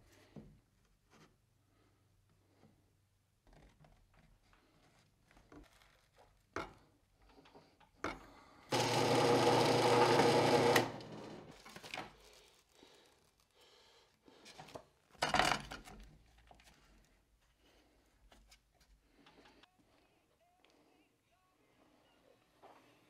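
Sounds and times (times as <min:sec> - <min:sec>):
power drill boring plywood: 0:08.7 - 0:11.6.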